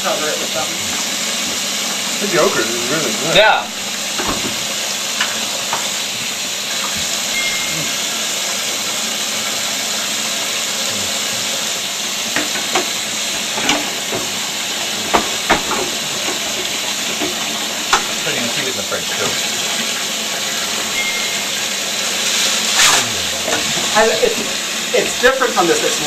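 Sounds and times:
tap running into sink: 4.1 - 6.0, 6.8 - 7.5, 12.2 - 14.4, 15.0 - 18.4
kitchenware clinking: 20.7 - 21.8.

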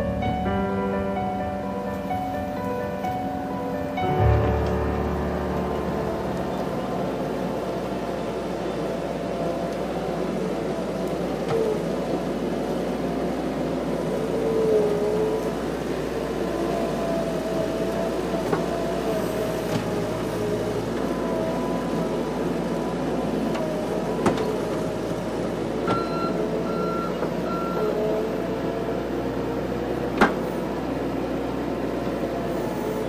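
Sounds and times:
skid-steer loader engine whine: 0.0 - 33.0
reversing alarm beeps: 25.8 - 28.1.

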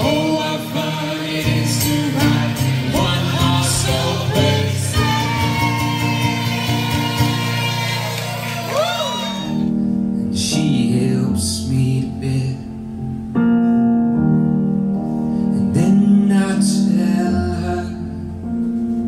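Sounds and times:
man singing: 0.0 - 8.1, 10.2 - 12.9, 15.6 - 18.3
piano chords: 0.0 - 19.0.

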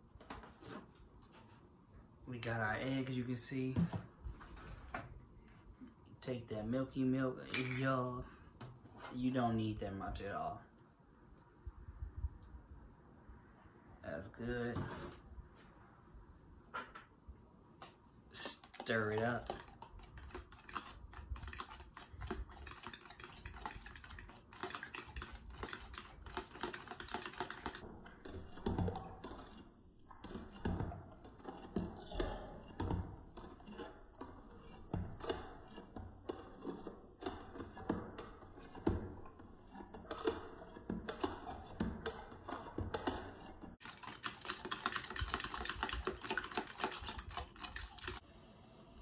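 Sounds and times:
fork clicking against container: 43.8 - 48.2.

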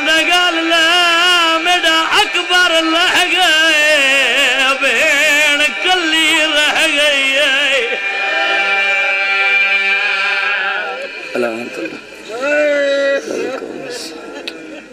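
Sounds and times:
man singing a lament: 0.0 - 11.2.

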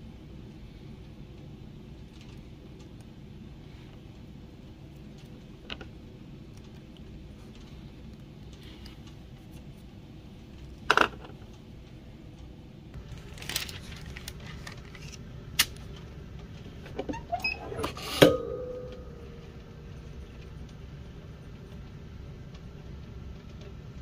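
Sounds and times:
metallic ring: 17.8 - 19.5.

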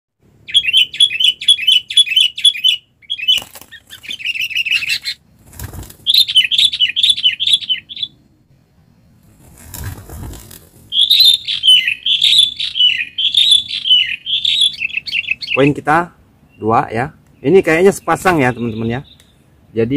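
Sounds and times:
bird chattering calls: 0.5 - 5.2, 6.0 - 8.2, 10.9 - 19.5
wing flapping: 3.3 - 6.8, 9.2 - 12.5.

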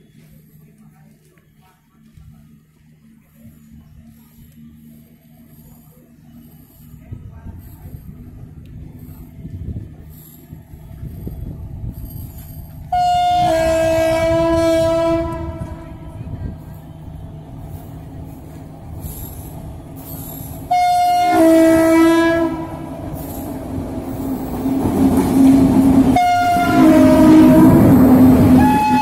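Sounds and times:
train rumbling past: 6.4 - 29.0
two-tone train horn blasts: 12.9 - 17.8, 20.0 - 23.4, 25.4 - 29.0.

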